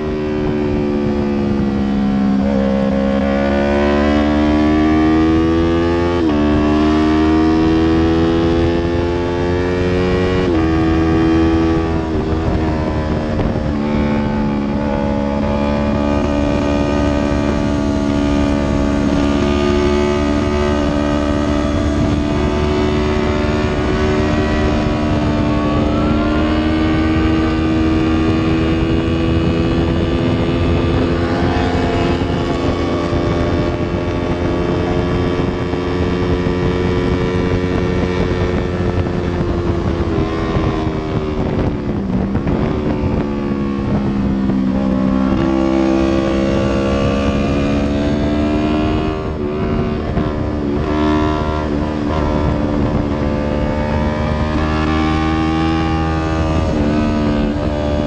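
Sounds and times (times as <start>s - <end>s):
motorcycle engine at high revs: 0.0s - 58.0s
wind rush: 0.0s - 58.0s.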